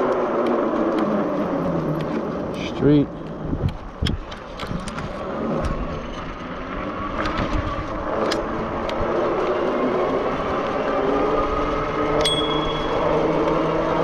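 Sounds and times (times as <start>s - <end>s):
bike clicks and rattles: 0.0s - 14.0s
wind buffeting: 0.0s - 14.0s.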